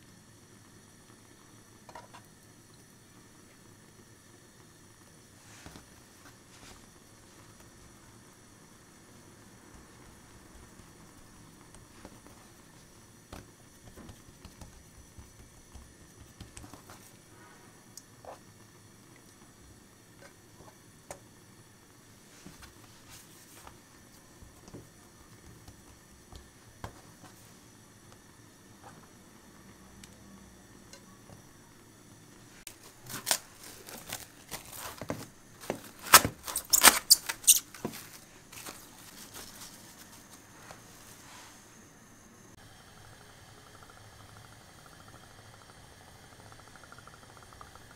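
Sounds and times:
hands patting dough on wood: 13.3s - 17.1s
cling film crinkling: 32.7s - 40.5s.

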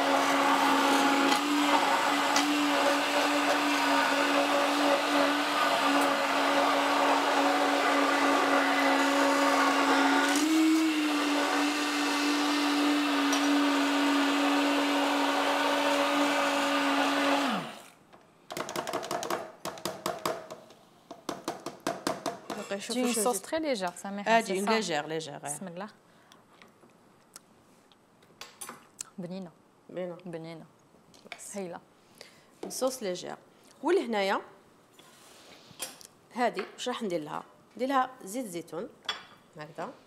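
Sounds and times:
blender motor running: 0.0s - 18.0s.

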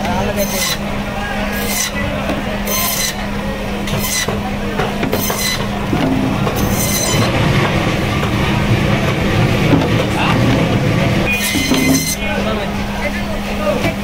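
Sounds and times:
band saw humming: 0.0s - 14.0s
saw blade screeching through bone: 0.4s - 0.8s, 1.5s - 2.0s, 2.7s - 3.2s, 3.9s - 4.3s, 5.2s - 5.7s, 6.6s - 7.3s, 11.3s - 12.3s.

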